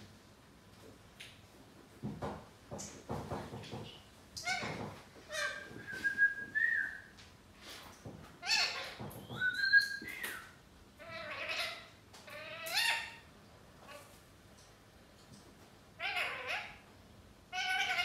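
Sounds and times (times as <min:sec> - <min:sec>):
parakeet rasping calls: 0:11.0 - 0:13.2, 0:16.0 - 0:16.8, 0:17.5 - 0:18.0.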